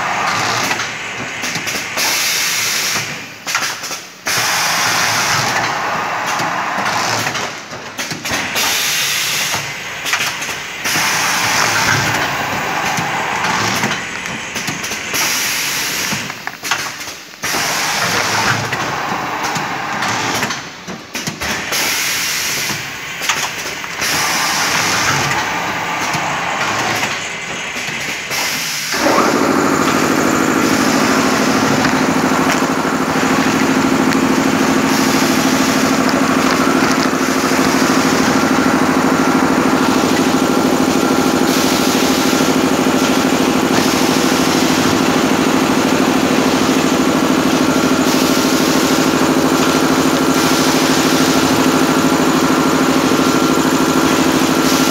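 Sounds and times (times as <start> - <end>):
motor humming steadily: 28.9 - 54.9.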